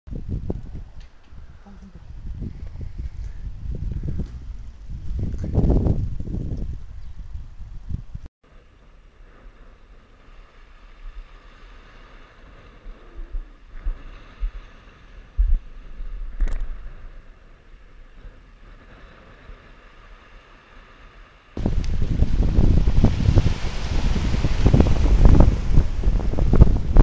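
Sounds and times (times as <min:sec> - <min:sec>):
wind buffeting microphone: 0:00.1 - 0:08.3, 0:09.3 - 0:20.0, 0:21.6 - 0:27.0
muffled wind: 0:00.1 - 0:27.0
waves washing over rocks: 0:18.4 - 0:27.0.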